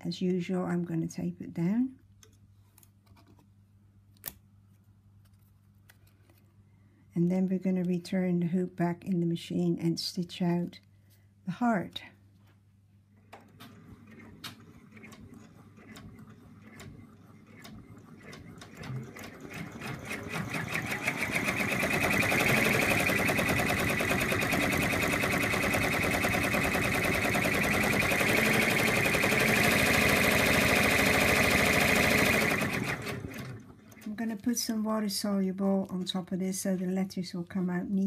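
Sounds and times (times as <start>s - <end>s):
embroidery machine stitching: 13.3s - 34.2s.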